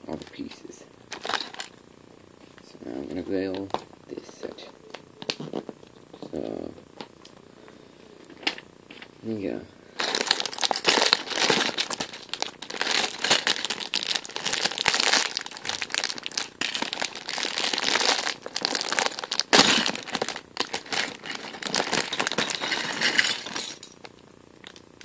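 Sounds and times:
plastic bag crinkling: 1.1s - 1.7s, 9.9s - 24.8s
plastic bricks emptied out: 10.0s - 23.9s.

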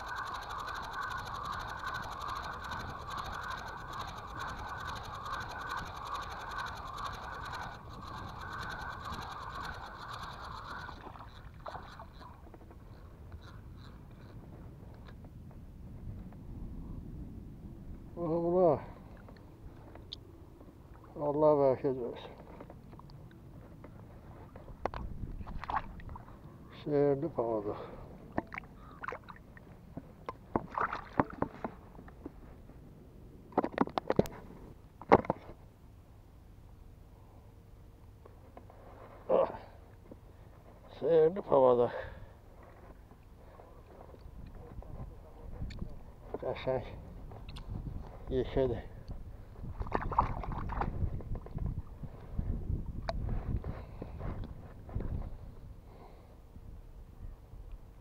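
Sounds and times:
fishing reel whirring: 0.0s - 14.4s
small clicks: 0.0s - 15.4s, 33.5s - 35.5s
small splashes: 25.4s - 26.3s, 28.5s - 29.4s, 30.6s - 31.4s, 49.8s - 50.9s.

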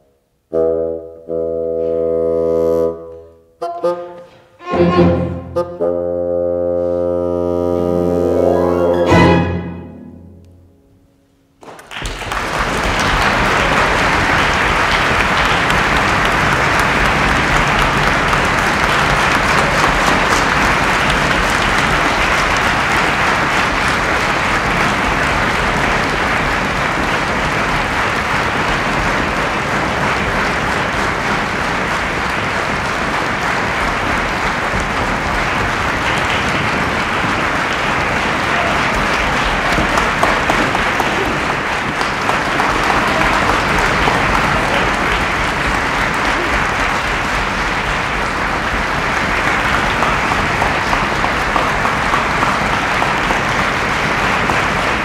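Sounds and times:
orchestra and bassoon final chord: 0.5s - 11.0s
audience applause: 11.6s - 55.0s.

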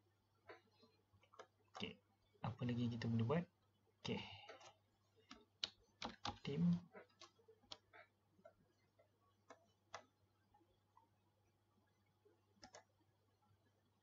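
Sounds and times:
faint computer mouse clicks: 12.6s - 12.9s.

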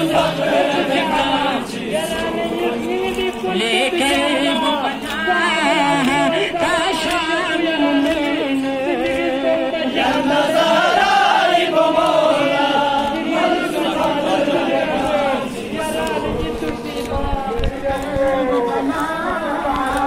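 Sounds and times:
men chanting in unison: 0.0s - 20.0s.

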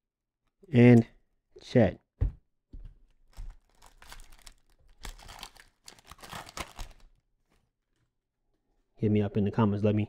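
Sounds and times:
plastic wrapper crinkling: 3.3s - 8.0s.

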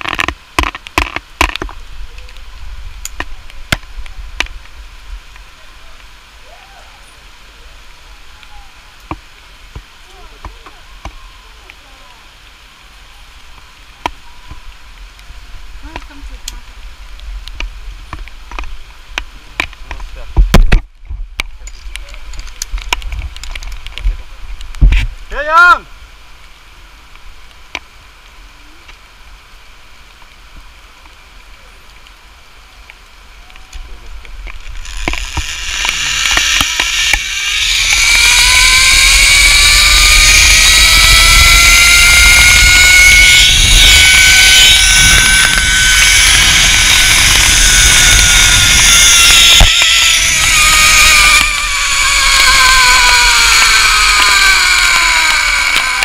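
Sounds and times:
whine rising in pitch: 34.4s - 56.0s
zipline pulleys on steel cable: 34.4s - 56.0s.

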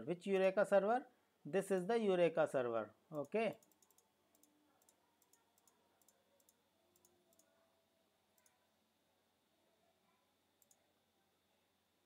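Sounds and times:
faint computer mouse clicks: 3.2s - 7.5s, 8.4s - 8.6s, 10.6s - 10.8s.

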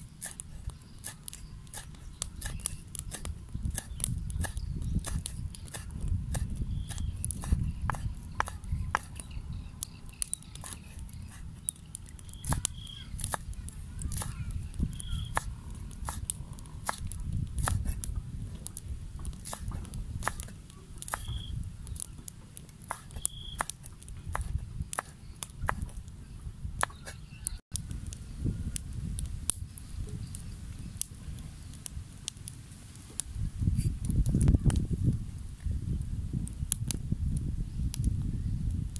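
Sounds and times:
cleaver chopping on cutting board: 1.0s - 9.2s, 15.1s - 18.0s, 19.2s - 21.4s, 22.9s - 25.9s
bird chirping: 6.6s - 8.4s, 9.1s - 13.2s, 14.3s - 15.5s, 21.1s - 22.2s, 23.1s - 23.7s.

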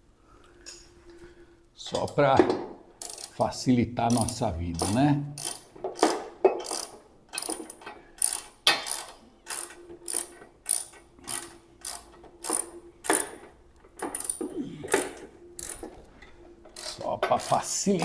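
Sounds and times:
hand ratchet clicking: 3.0s - 3.4s, 4.1s - 16.0s, 16.8s - 18.0s.

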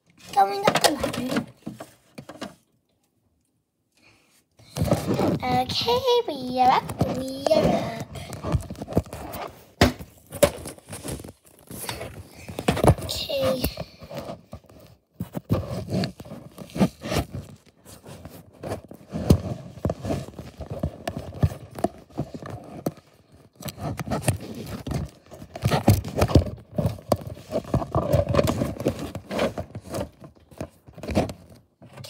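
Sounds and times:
plastic toys knocking and scraping: 0.1s - 2.8s, 4.6s - 32.0s.

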